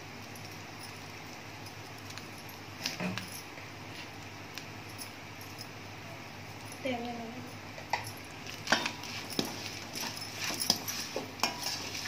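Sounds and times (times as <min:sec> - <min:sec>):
steady low hum: 0:00.0 - 0:12.0
spatula scraping steel pan: 0:08.7 - 0:12.0.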